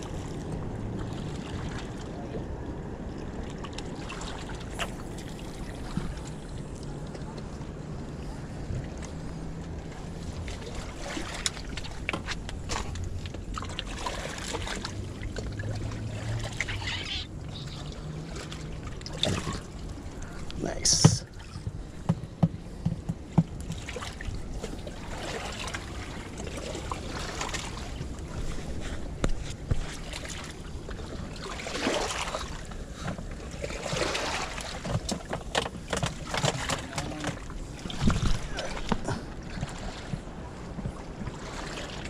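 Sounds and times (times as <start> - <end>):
fishing gear clicks and knocks: 34.8 - 37.4
wind rumbling on microphone: 37.3 - 42.0.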